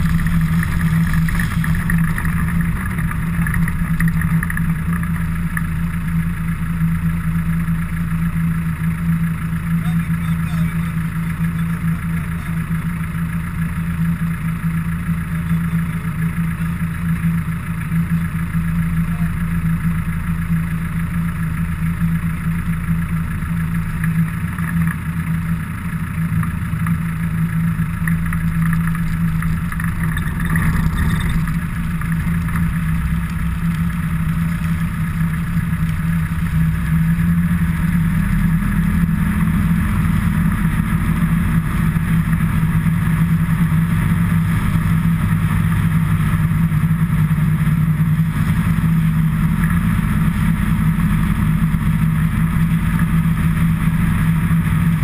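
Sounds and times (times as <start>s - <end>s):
road noise: 0.0s - 55.0s
vehicle engine humming: 0.0s - 55.0s.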